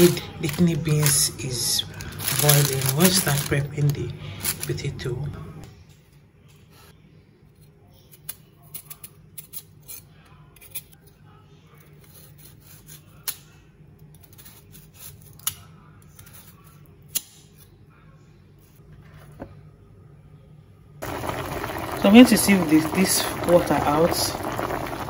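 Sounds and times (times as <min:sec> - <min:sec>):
steady low hum: 0:19.6 - 0:25.0.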